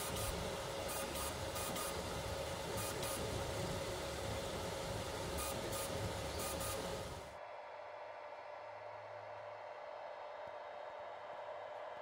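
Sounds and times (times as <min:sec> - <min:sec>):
three d printer whirring: 0:00.0 - 0:07.3
short hissy bursts: 0:05.3 - 0:07.1.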